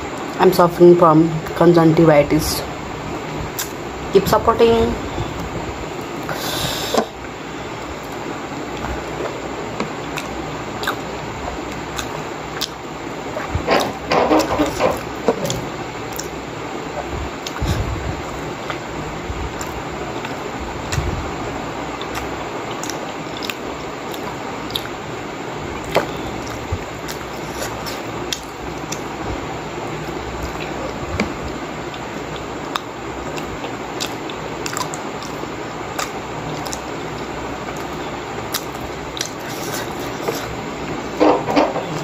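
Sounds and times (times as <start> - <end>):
background hiss: 0.0 - 42.0
person chewing: 3.6 - 3.8, 7.9 - 16.4, 17.4 - 18.8, 19.5 - 21.0, 21.9 - 25.0, 25.8 - 29.2, 30.0 - 42.0
wet mouth clicks and smacks: 3.6 - 3.8, 10.1 - 11.0, 11.9 - 12.8, 36.0 - 40.4.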